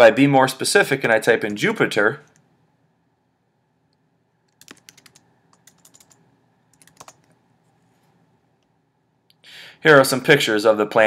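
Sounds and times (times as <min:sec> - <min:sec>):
laptop keyboard keys clicking: 0:04.5 - 0:07.4.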